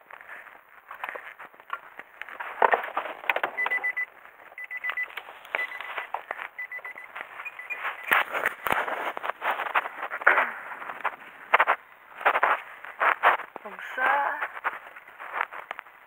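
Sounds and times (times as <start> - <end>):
car warning chime beeping: 3.6 - 8.7.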